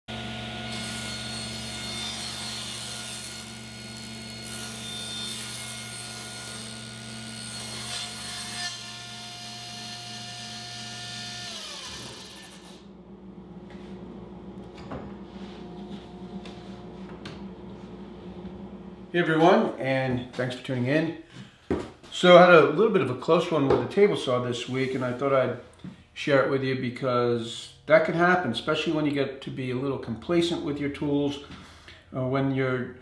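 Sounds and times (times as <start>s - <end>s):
table saw running: 0.1s - 13.5s.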